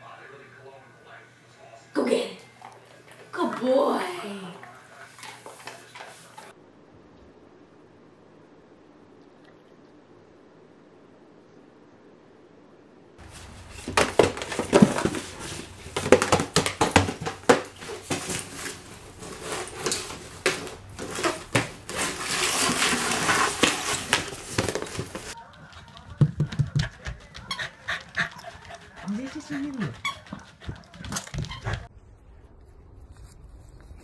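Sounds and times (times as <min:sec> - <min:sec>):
cardboard box scraping on wooden floor: 0:13.2 - 0:25.4.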